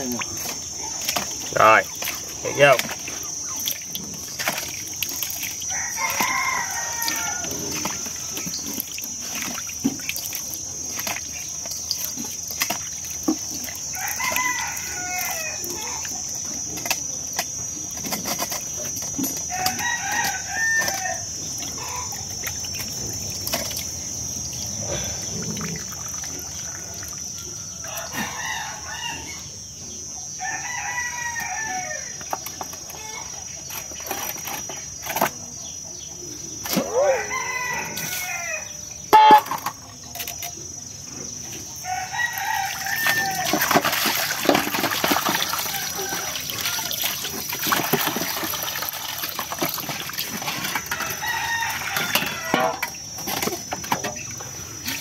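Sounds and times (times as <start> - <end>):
rooster crowing: 5.6 - 8.3, 13.8 - 16.2, 19.4 - 22.2, 26.2 - 29.5, 30.3 - 32.2, 36.8 - 39.4, 41.8 - 47.5, 50.6 - 53.1.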